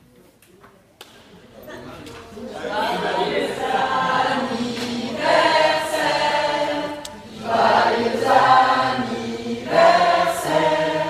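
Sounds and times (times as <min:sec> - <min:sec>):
choir singing: 0:02.5 - 0:11.0.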